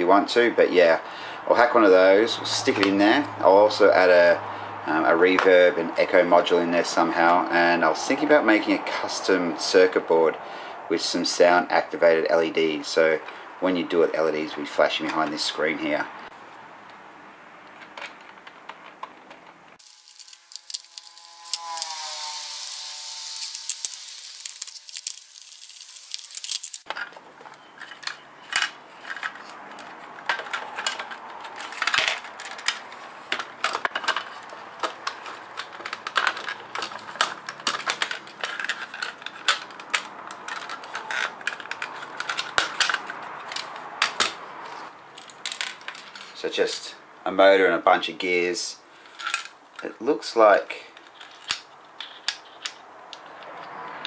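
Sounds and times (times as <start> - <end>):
plastic and metal parts clicking: 17.6 - 44.4, 51.0 - 54.0
hiss with tone gliding down: 20.7 - 26.4.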